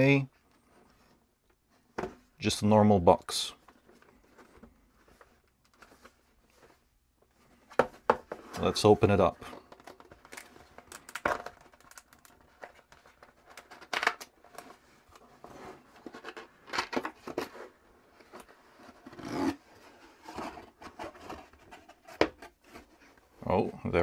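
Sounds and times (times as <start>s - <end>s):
cardboard scraping on cardboard: 17.3s - 23.1s.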